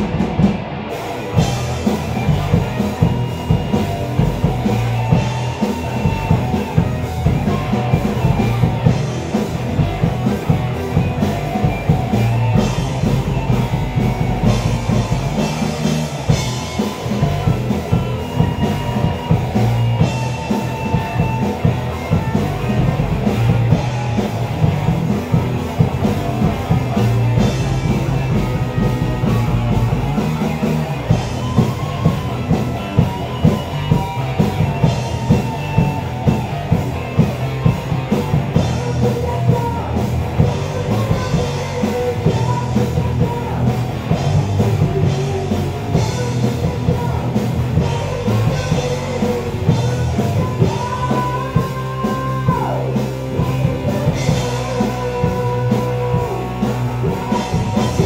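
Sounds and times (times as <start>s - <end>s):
bass guitar: 0.0s - 58.0s
distorted electric guitars: 0.0s - 58.0s
drums driving beat: 0.0s - 58.0s.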